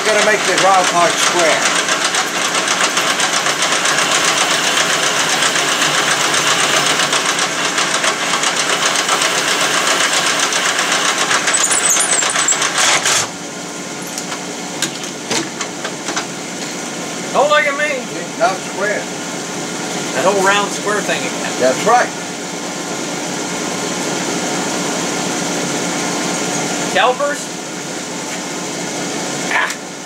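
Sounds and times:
lathe running: 0:00.0 - 0:14.2
lathe cutting rasp: 0:00.1 - 0:13.3
high squeal: 0:11.5 - 0:12.6.

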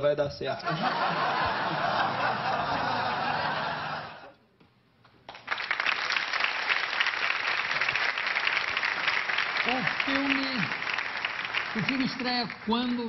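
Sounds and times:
studio audience applause: 0:05.3 - 0:13.0.

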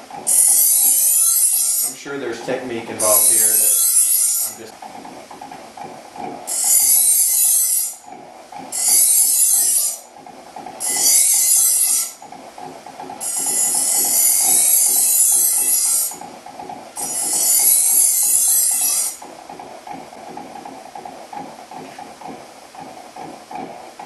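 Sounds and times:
bench grinder motor whine: 0:00.0 - 0:04.7, 0:06.4 - 0:08.0, 0:08.7 - 0:10.1, 0:10.8 - 0:12.3, 0:13.2 - 0:16.3, 0:17.0 - 0:19.3
knife blade hissing on wheel: 0:00.3 - 0:02.0.

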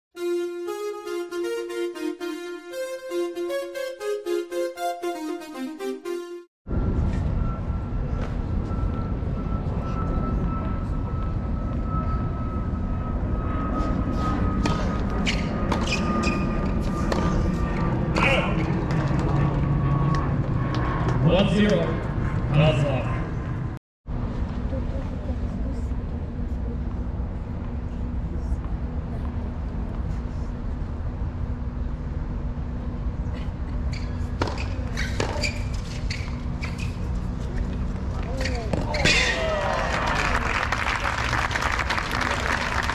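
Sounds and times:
steady low hum: 0:06.7 - 0:38.7
tennis ball bouncing on hard court: 0:34.3 - 0:35.9.

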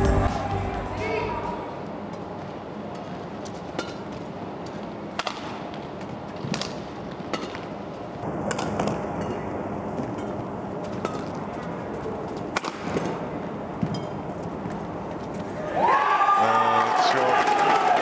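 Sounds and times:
hall background noise: 0:00.0 - 0:18.0
racket hitting shuttlecock: 0:03.0 - 0:15.5.

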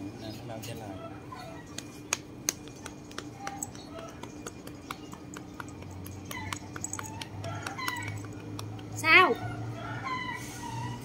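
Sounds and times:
hand patting cat: 0:01.7 - 0:09.0.

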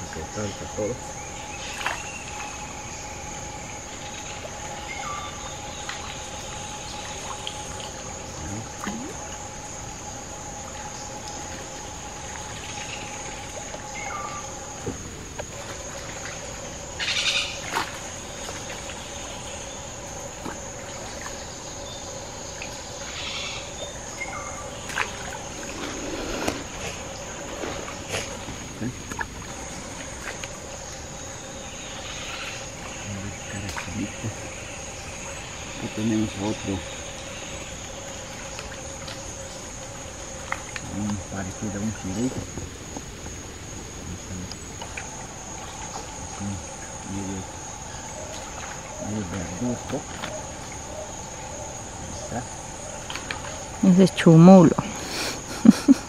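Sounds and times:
water splashing and dripping: 0:00.0 - 0:04.8, 0:05.4 - 0:23.2, 0:24.6 - 0:31.4, 0:32.5 - 0:56.0
high insect trill: 0:00.0 - 0:56.0.

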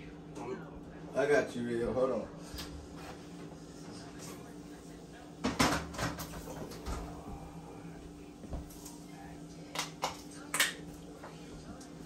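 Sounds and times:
steady low hum: 0:00.0 - 0:12.0
dishes and cupboards knocking: 0:05.4 - 0:07.1.

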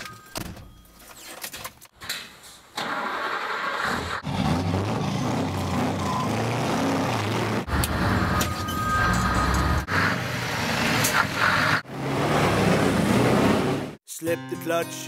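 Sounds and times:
vehicle engines running: 0:04.2 - 0:14.0.

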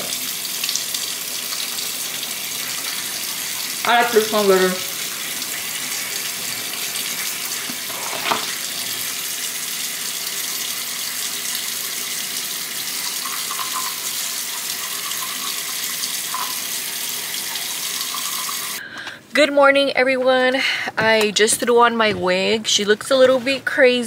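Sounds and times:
sink tap running: 0:00.0 - 0:18.8.

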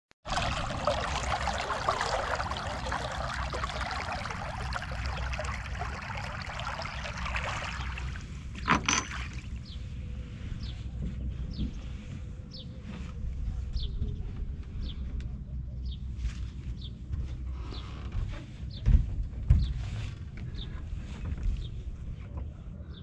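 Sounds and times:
water splashing around feet: 0:00.3 - 0:09.7.

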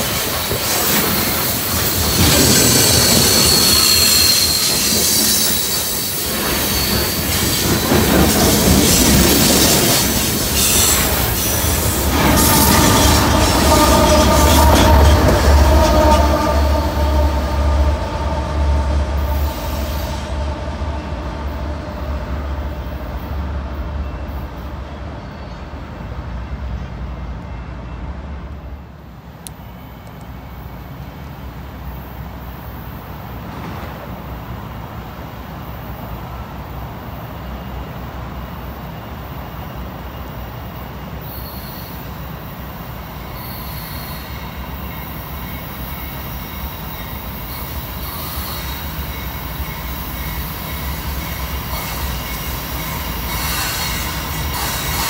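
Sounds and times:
another train rumbling: 0:00.0 - 0:55.0
freight train rumble: 0:00.0 - 0:55.0
wheel flange squeal: 0:00.7 - 0:21.8, 0:43.2 - 0:55.0.

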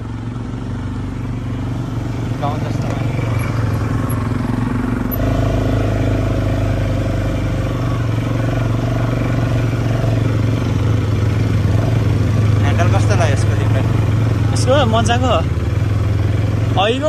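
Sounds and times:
atv engine running: 0:00.0 - 0:17.0.

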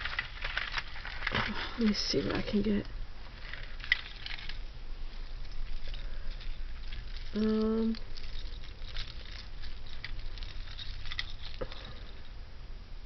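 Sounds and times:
small beads clicking and rattling: 0:00.0 - 0:12.3
person humming: 0:07.3 - 0:08.0.

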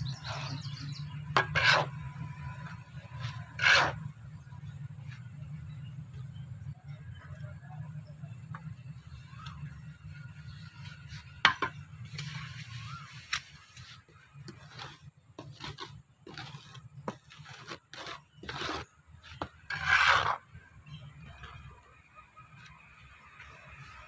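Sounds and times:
trowel scraping wet cement: 0:00.0 - 0:04.1, 0:10.4 - 0:20.5.

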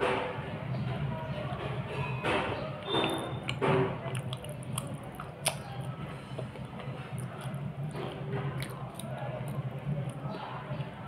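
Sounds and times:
pencil being chewed crunching: 0:02.9 - 0:10.2.

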